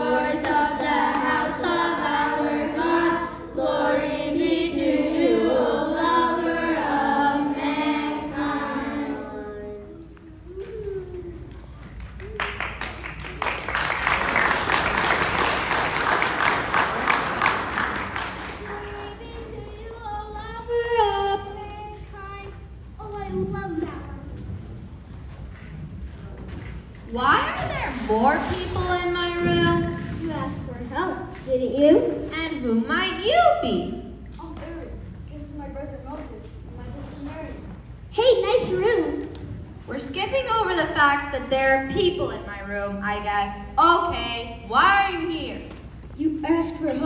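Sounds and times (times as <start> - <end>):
children's choir singing: 0.0 - 10.1
audience applauding: 11.6 - 19.3.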